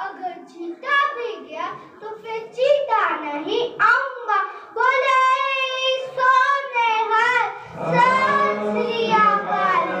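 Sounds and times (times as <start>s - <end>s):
child singing with vibrato: 4.8s - 10.0s
adult voices singing: 7.7s - 10.0s.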